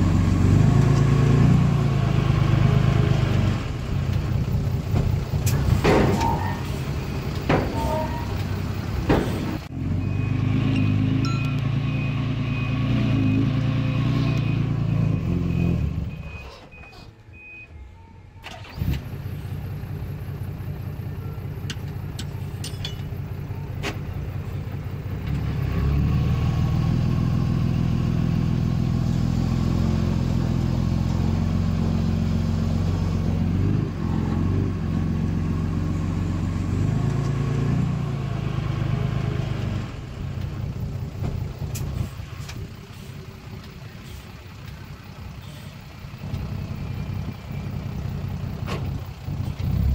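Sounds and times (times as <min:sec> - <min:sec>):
engine revving: 0:00.0 - 0:03.9, 0:09.1 - 0:16.3, 0:25.2 - 0:40.1
diesel engine of heavy machinery: 0:00.0 - 0:49.9
reversing alarm beeping: 0:14.2 - 0:18.7.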